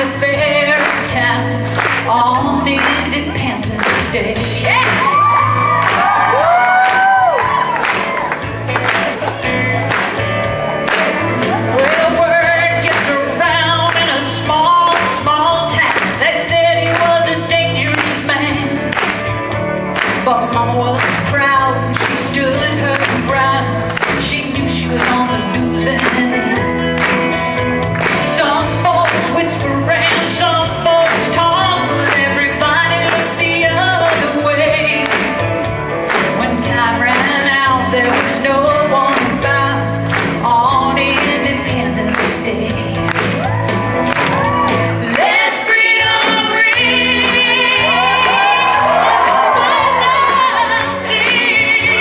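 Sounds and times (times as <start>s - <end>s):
woman singing into microphone: 0.0s - 7.6s, 11.7s - 19.0s, 20.1s - 26.9s, 28.0s - 35.3s, 36.2s - 43.4s, 45.0s - 52.0s
backing music with steady beat: 0.0s - 52.0s.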